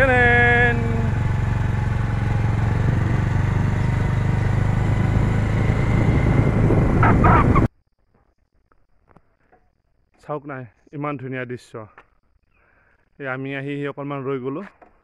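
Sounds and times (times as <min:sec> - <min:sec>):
vehicle engine and road noise: 0:00.0 - 0:07.7.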